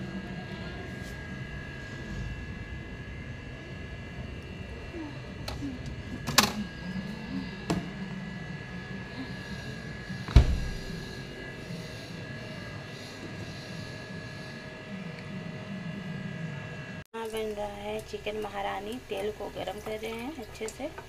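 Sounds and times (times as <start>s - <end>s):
steady mechanical hum: 0.0s - 21.0s
loud thump: 10.3s - 11.1s.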